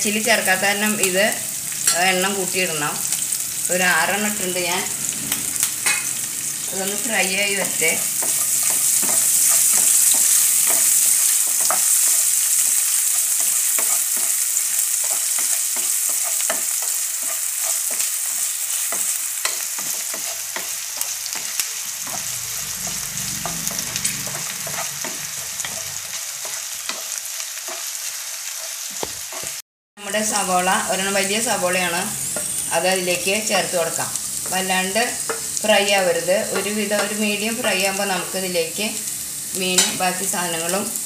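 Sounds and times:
food sizzling in hot oil: 0.0s - 41.0s
spatula tapping and scraping pan: 7.6s - 12.2s.

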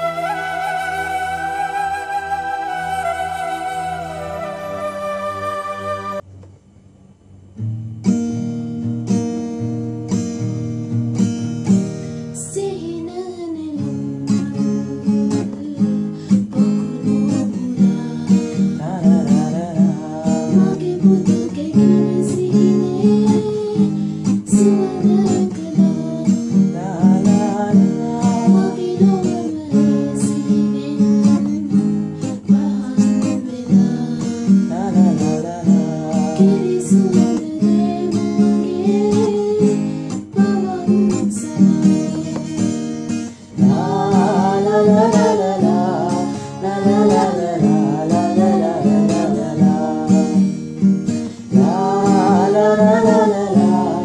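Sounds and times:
acoustic guitar strumming: 0.0s - 6.3s, 7.6s - 13.1s, 13.8s - 54.0s
man singing: 18.8s - 21.4s, 26.7s - 28.8s, 34.6s - 37.4s, 43.6s - 50.5s, 51.4s - 54.0s.

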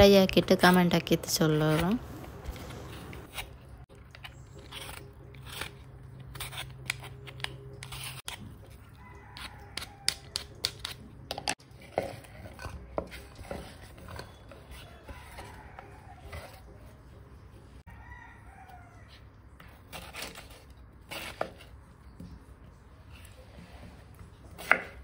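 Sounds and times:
knife slicing on wooden board: 24.5s - 25.0s.

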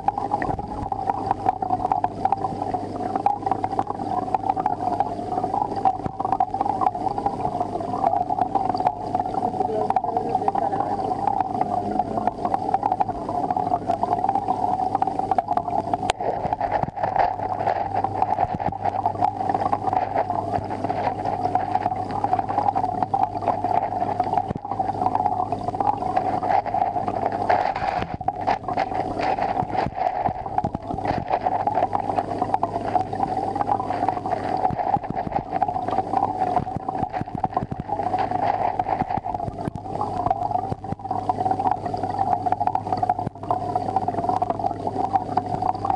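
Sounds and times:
aquarium equipment hum: 0.0s - 45.9s
rushing water: 0.0s - 45.9s.

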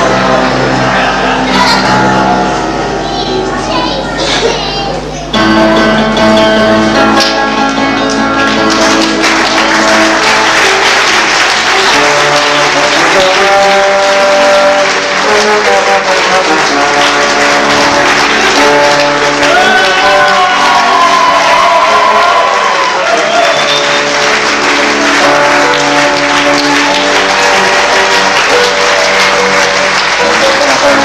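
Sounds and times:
live music: 0.0s - 31.0s
audience applauding: 7.6s - 31.0s.

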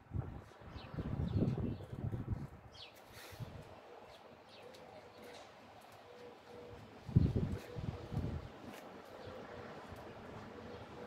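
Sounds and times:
wind buffeting microphone: 0.0s - 3.8s, 6.9s - 8.7s.

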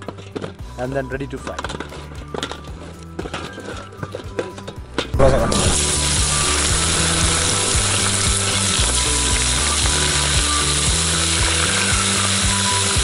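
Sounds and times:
food deep-frying in oil: 5.3s - 13.0s.

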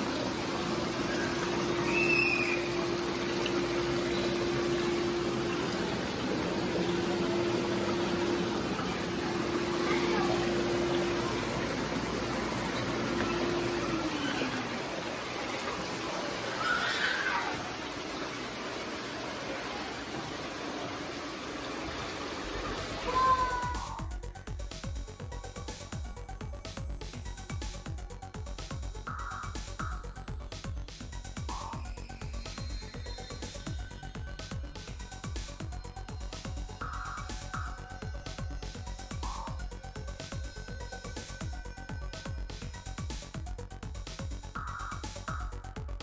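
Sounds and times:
water running and splashing: 0.0s - 26.0s
motor hum: 0.0s - 46.0s.

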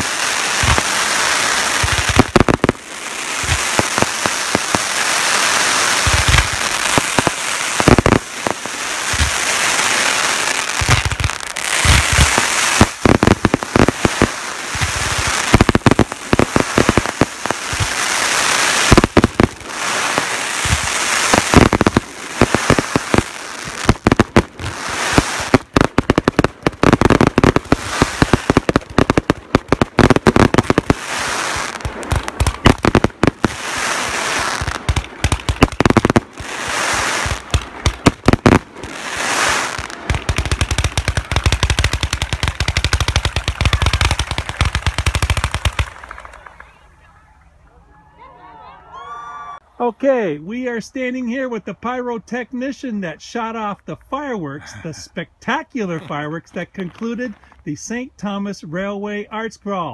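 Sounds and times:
fireworks fountain hiss: 0.0s - 46.6s
fireworks crackling and popping: 0.0s - 47.3s, 50.8s - 59.9s.

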